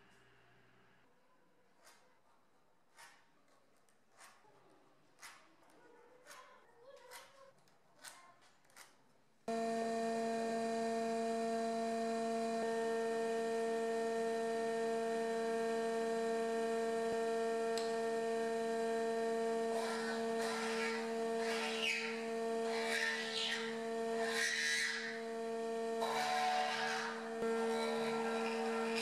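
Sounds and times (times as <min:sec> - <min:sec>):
woodworking machine humming: 0:09.5 - 0:29.0
mortising bit cutting wood: 0:19.3 - 0:29.0.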